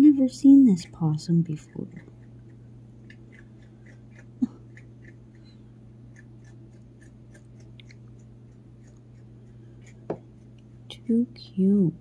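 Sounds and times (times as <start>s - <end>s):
steady low hum: 0.0s - 12.0s
possum chewing clicks: 1.6s - 10.7s.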